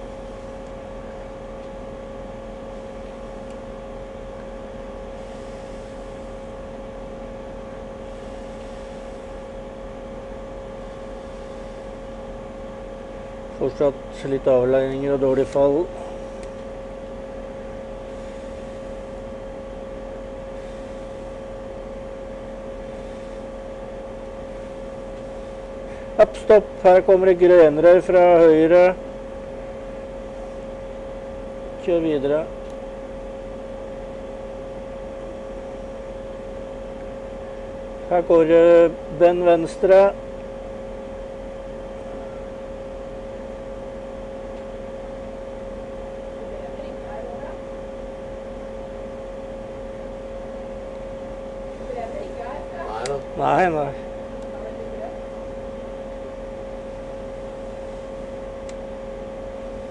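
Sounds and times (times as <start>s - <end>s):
mid-pitched whine: 0.0s - 59.9s
steady hum: 0.0s - 59.9s
flat hiss: 5.2s - 6.4s.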